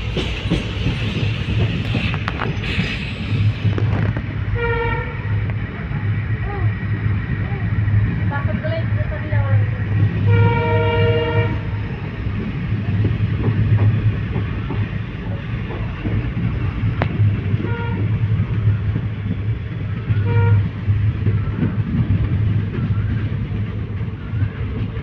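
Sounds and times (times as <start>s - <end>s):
train rumbling on rails: 0.0s - 25.0s
train horn: 4.6s - 5.4s, 10.2s - 11.8s, 17.6s - 18.2s, 20.2s - 20.7s.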